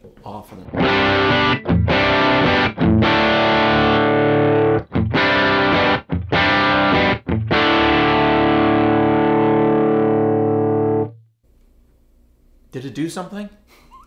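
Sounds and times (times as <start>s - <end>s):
overdriven electric guitar chords: 0.7s - 11.2s.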